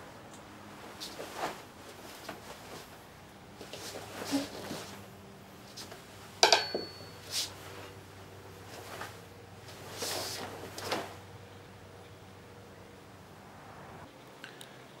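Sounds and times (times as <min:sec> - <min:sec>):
swishes of swinging weapons: 0:03.6 - 0:05.1, 0:08.7 - 0:11.2
metal clank with ring: 0:06.4 - 0:07.3.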